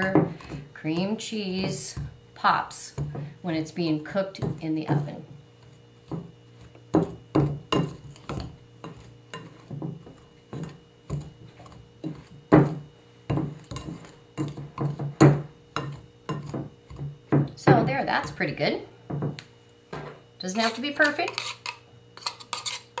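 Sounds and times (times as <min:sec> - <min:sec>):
pastry blender scraping glass bowl: 0:20.4 - 0:23.0.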